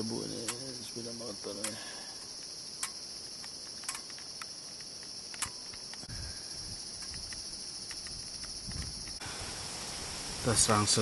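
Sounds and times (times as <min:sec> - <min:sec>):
insects chorus: 0:00.0 - 0:11.0
sharp clicks: 0:00.4 - 0:00.7, 0:01.6 - 0:06.1, 0:07.0 - 0:09.2.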